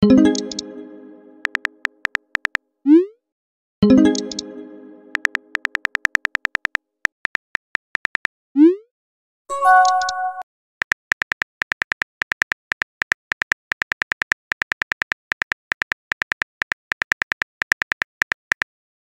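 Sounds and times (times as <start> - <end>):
phone keyboard typing clicks: 1.4 - 2.6, 5.1 - 8.3, 9.6 - 18.7.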